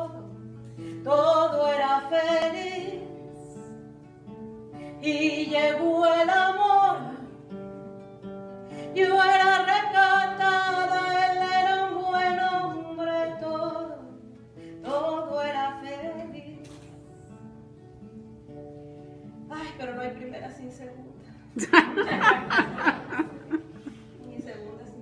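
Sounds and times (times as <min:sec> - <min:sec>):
woman singing: 0:00.0 - 0:00.4, 0:01.0 - 0:03.8, 0:04.9 - 0:07.5, 0:08.7 - 0:16.8
plucked acoustic guitar: 0:00.0 - 0:19.8, 0:20.7 - 0:24.9.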